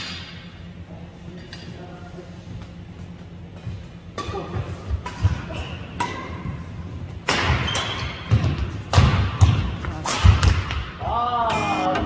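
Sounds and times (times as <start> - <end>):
rackets striking shuttlecock: 4.1 - 6.5, 7.2 - 10.9.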